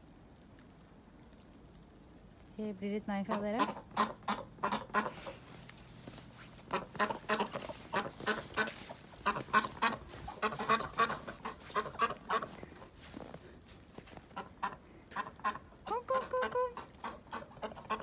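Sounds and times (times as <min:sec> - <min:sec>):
ducks quacking: 0:03.2 - 0:05.6, 0:06.6 - 0:13.0, 0:14.3 - 0:18.0.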